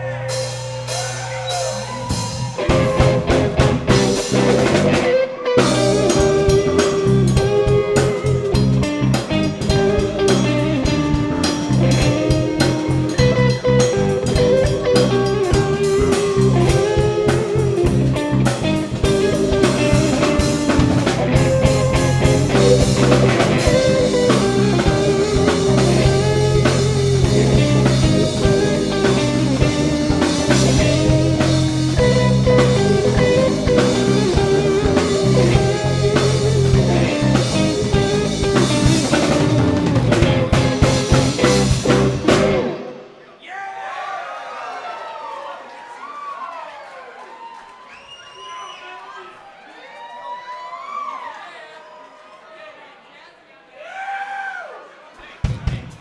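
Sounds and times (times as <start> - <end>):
electric guitar leading: 0.0 - 43.2
live rock band playing: 0.0 - 43.2.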